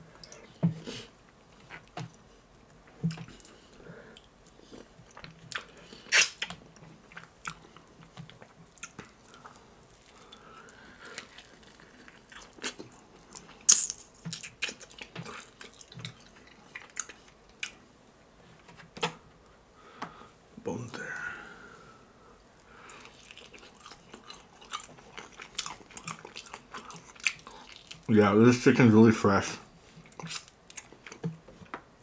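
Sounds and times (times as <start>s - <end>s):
chewing crunches: 3.0s - 17.8s, 22.9s - 28.1s, 30.0s - 31.3s
wet mouth clicks: 5.1s - 6.5s, 30.1s - 30.9s.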